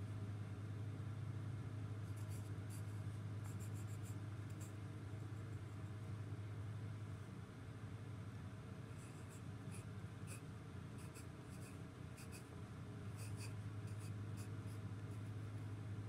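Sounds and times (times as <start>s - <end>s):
steady low hum: 0.0s - 16.0s
pencil scratching on paper: 2.1s - 4.8s, 9.0s - 10.4s, 11.0s - 12.5s, 13.1s - 15.6s.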